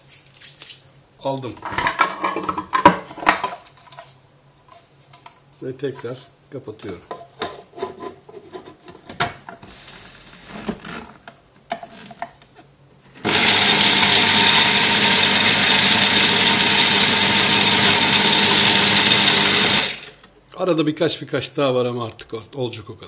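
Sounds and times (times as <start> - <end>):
food processor motor grinding: 13.2 - 20.2.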